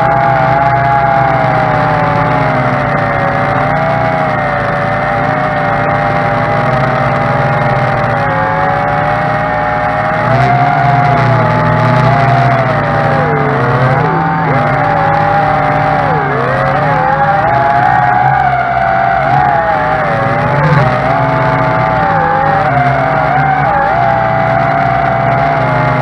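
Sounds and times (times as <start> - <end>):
drone propellers whining: 0.0 - 26.0.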